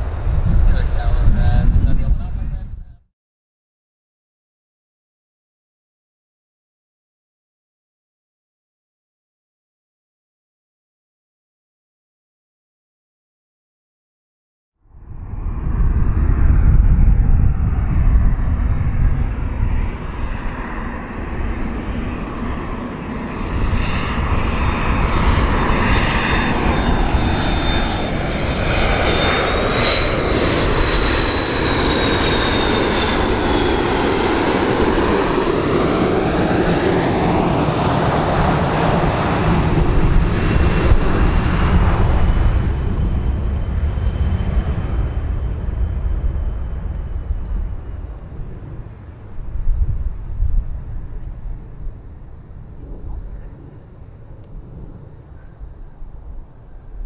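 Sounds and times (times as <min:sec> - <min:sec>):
jet engines rumbling: 0:00.0 - 0:03.0, 0:14.9 - 0:57.0
high whine: 0:14.9 - 0:57.0.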